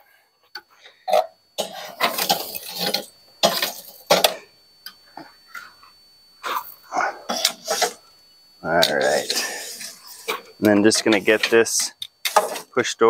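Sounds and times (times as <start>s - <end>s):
metal tongs scraping and clinking: 8.7s - 12.8s.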